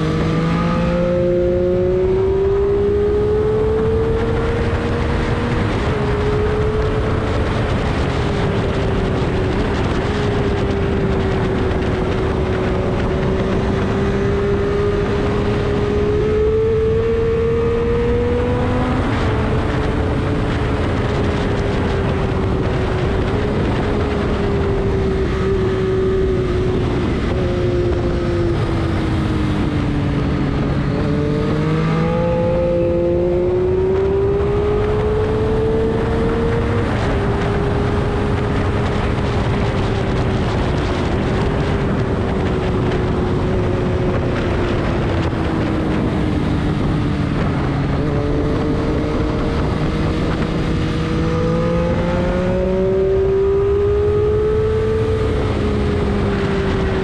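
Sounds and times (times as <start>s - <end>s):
car engine running hard: 0.0s - 57.0s
road noise rush: 0.0s - 57.0s.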